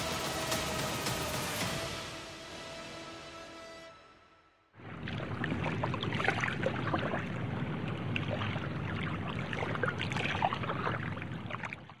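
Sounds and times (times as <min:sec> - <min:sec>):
water sloshing and bubbling: 0:04.8 - 0:12.0.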